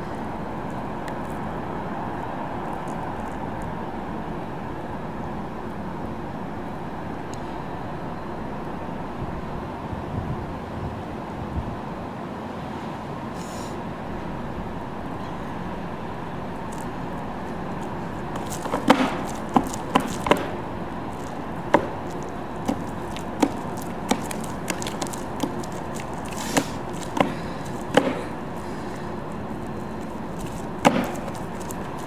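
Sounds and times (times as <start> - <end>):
steady background hum: 0.0 - 32.0
slippers stamping on wet platform: 18.3 - 32.0.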